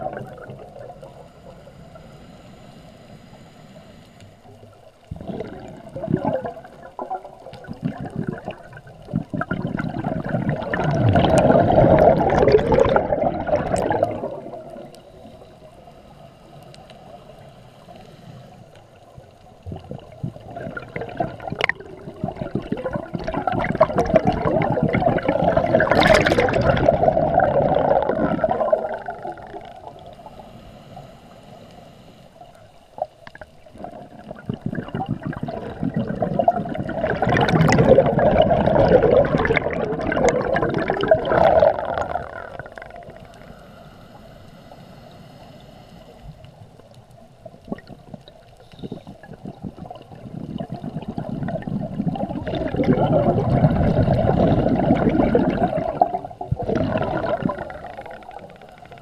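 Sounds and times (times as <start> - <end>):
diver's breath bubbling underwater: 5.1 - 15.0, 19.7 - 30.0, 33.7 - 43.5, 48.8 - 59.0
water murmur: 19.7 - 29.9, 47.4 - 59.0.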